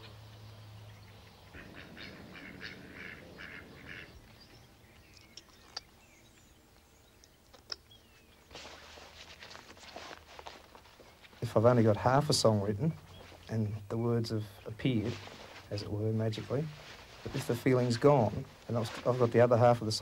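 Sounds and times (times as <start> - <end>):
ducks quacking: 1.1 - 4.4
faint clicks: 5.0 - 7.9
rustling hiss: 14.5 - 20.0.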